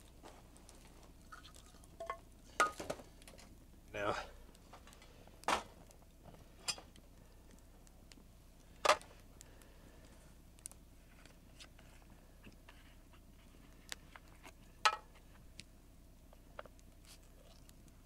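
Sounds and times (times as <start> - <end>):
coal chunks clattering: 0.0 - 3.5.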